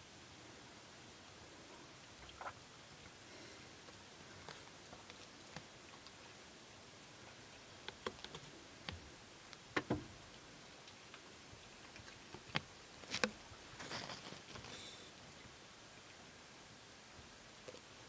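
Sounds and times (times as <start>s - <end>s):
faint clicks and ticks: 7.2s - 14.9s
rustling: 10.9s - 15.1s.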